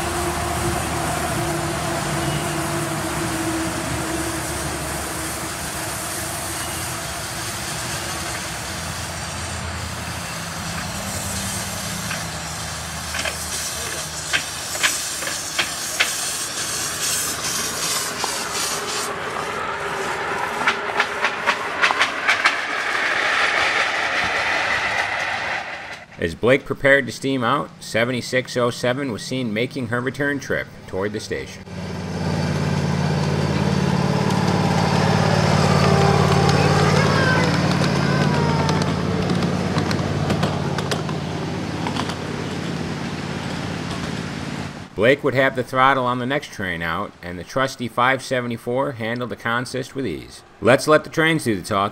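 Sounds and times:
miniature locomotive engine droning: 0.0s - 26.2s, 31.6s - 44.9s
steam hissing: 0.0s - 26.2s
cars clicking over track: 11.9s - 26.1s, 33.2s - 44.2s.

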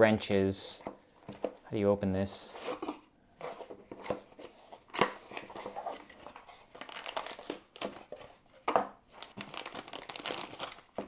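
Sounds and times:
packaging rustling and crinkling: 2.6s - 11.0s.

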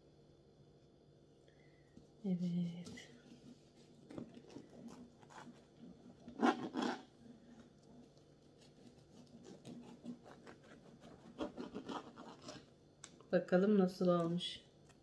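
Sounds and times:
bread crust crunching: 4.0s - 13.3s
knife sawing through bread crust: 8.6s - 12.7s.

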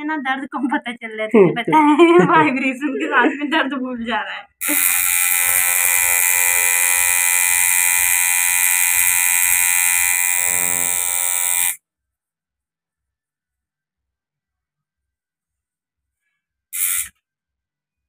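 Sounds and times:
tattoo machine buzzing: 4.6s - 11.8s, 16.8s - 17.2s.

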